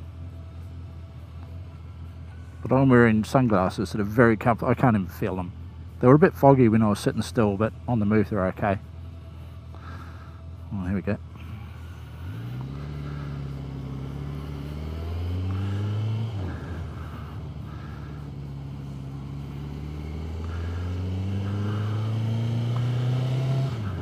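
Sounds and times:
motorcycle engine accelerating: 0:07.8 - 0:24.0.

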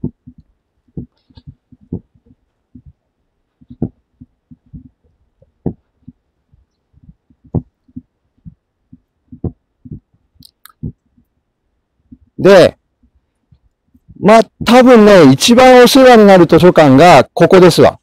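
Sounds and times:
footsteps thumping: 0:00.0 - 0:10.2
microphone handling bumps: 0:00.0 - 0:11.2, 0:13.0 - 0:14.8.

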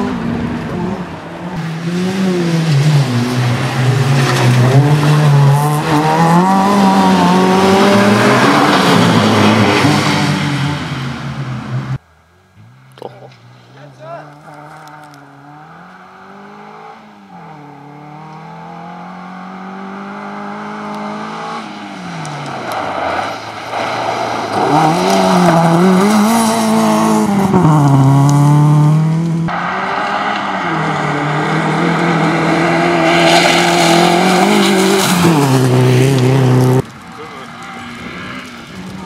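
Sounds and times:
rally car engine at high revs: 0:00.0 - 0:12.0, 0:14.2 - 0:23.2, 0:23.9 - 0:36.9
gravel spraying from tyres: 0:21.6 - 0:27.3, 0:29.2 - 0:39.0.

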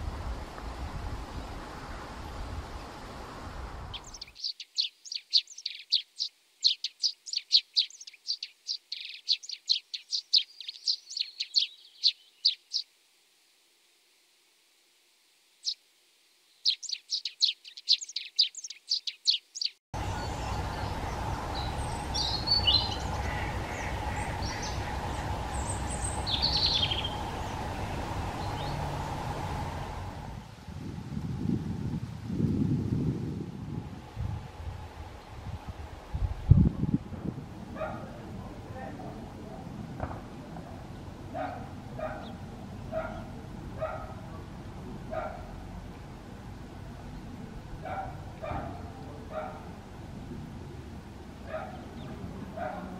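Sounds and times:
wind on the microphone: 0:00.0 - 0:04.3, 0:20.0 - 0:52.9
sparrow chirping: 0:03.9 - 0:12.9, 0:16.6 - 0:29.4, 0:41.3 - 0:44.4, 0:51.4 - 0:52.9
faint bird notes: 0:16.6 - 0:30.3.

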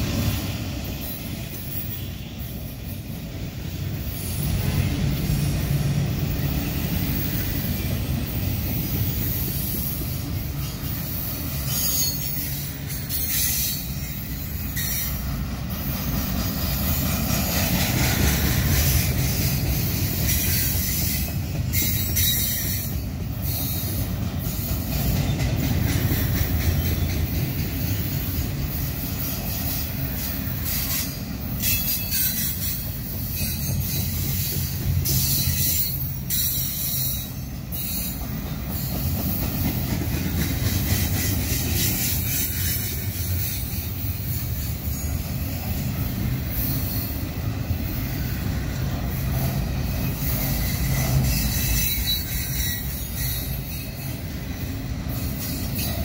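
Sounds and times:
train wheels rumbling on rail: 0:00.0 - 0:56.0
high wheel squeals: 0:06.4 - 0:16.0, 0:18.6 - 0:24.9, 0:26.7 - 0:39.9, 0:40.9 - 0:56.0.

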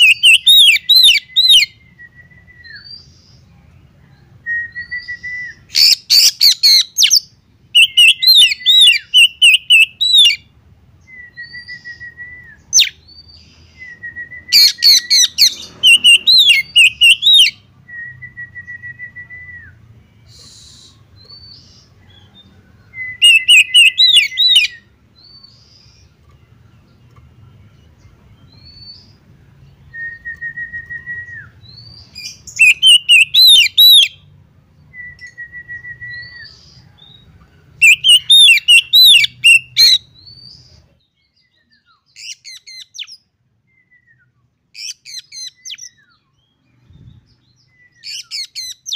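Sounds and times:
bird whistled song phrases: 0:00.0 - 0:03.4, 0:04.4 - 0:26.1, 0:28.4 - 0:37.2, 0:37.8 - 0:48.9
long level bird whistles: 0:04.4 - 0:10.4, 0:11.1 - 0:25.8, 0:29.8 - 0:34.2, 0:34.9 - 0:37.2, 0:37.8 - 0:40.7, 0:47.0 - 0:48.9.

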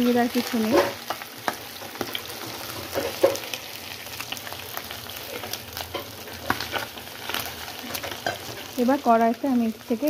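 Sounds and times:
fish sizzling in oil: 0:00.0 - 0:10.0
spatula scraping pan: 0:05.2 - 0:08.9.

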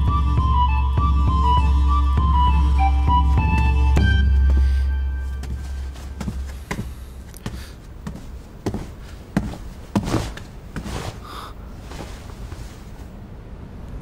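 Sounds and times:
background music: 0:00.0 - 0:06.7
footsteps: 0:03.4 - 0:13.1.

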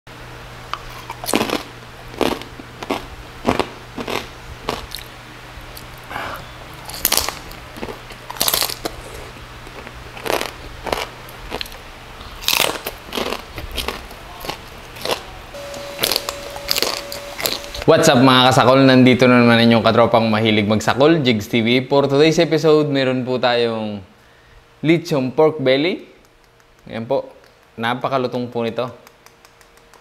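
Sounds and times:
crunching and chewing crispy pork: 0:00.8 - 0:06.2, 0:06.8 - 0:17.8.

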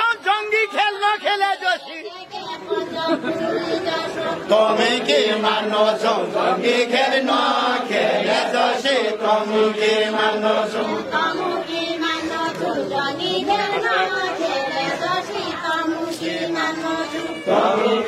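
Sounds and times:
group of men chanting: 0:04.2 - 0:11.6, 0:17.5 - 0:18.0.

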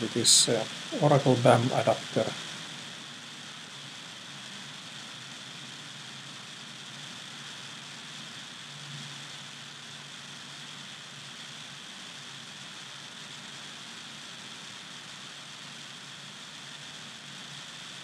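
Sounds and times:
faint low hum: 0:00.0 - 0:02.7
steady background hiss: 0:00.0 - 0:18.0.

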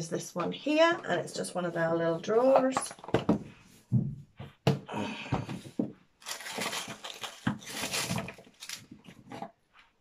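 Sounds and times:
cardboard packaging scraping and rustling: 0:06.2 - 0:09.4.

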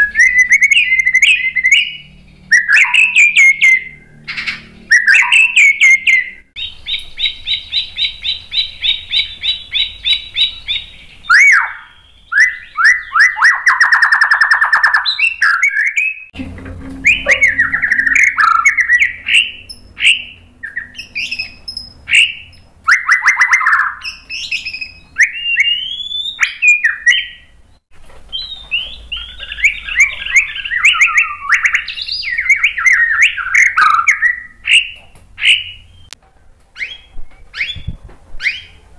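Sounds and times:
bird singing trills and whistles: 0:00.0 - 0:16.4, 0:17.0 - 0:36.1, 0:36.8 - 0:38.8.

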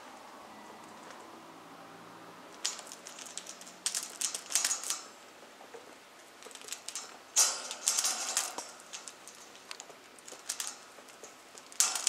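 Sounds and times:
parrot beak rattling metal cage: 0:02.6 - 0:05.1, 0:06.5 - 0:10.9.

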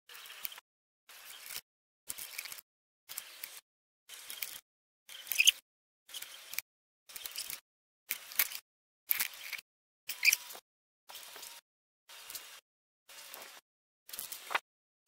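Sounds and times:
metal parts clicking and knocking: 0:01.2 - 0:05.5, 0:06.1 - 0:10.5.

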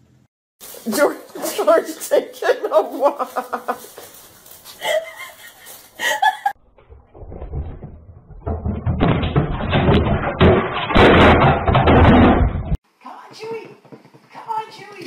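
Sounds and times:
thumps: 0:06.6 - 0:12.8
television falling with clatter: 0:07.2 - 0:12.8.

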